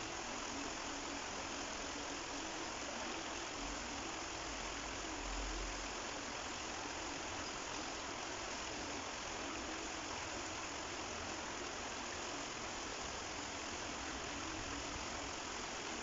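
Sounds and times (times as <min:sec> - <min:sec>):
stream water flowing: 0:00.0 - 0:16.0.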